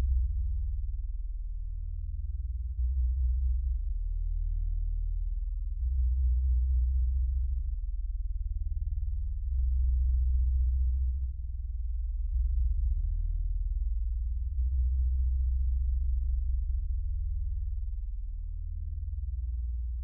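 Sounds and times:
deep droning bass hum: 0.0s - 20.0s.

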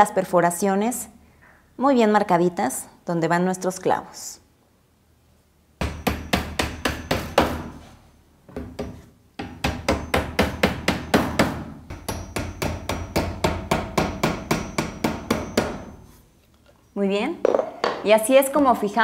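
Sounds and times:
hammer tapping nails into board: 5.8s - 7.7s, 8.5s - 16.0s.

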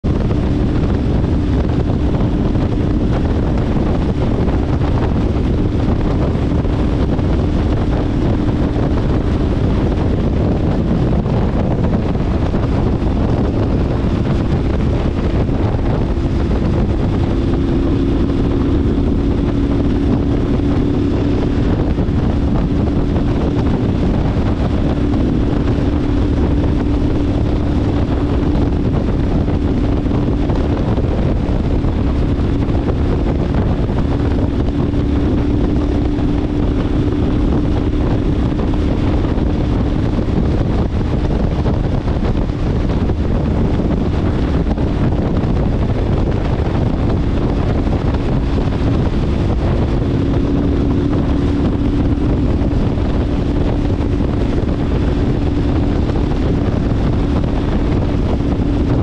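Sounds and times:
motorcycle engine cruising: 0.0s - 59.0s
wind noise on microphone: 0.0s - 59.0s.

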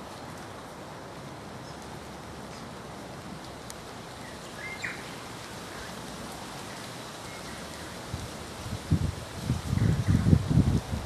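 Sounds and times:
outdoor background hiss: 0.0s - 11.0s.

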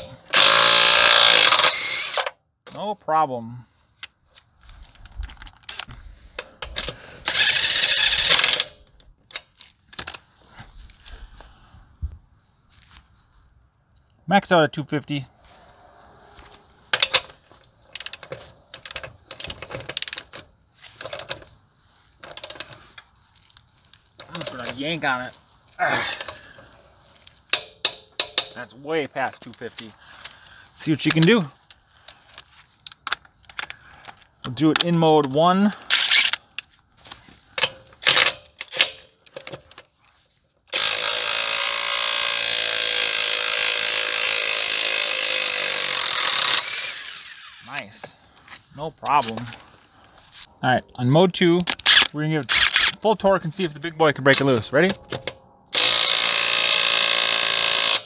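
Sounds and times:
wrench clicking on lug nut: 27.5s - 28.6s, 55.8s - 58.0s.

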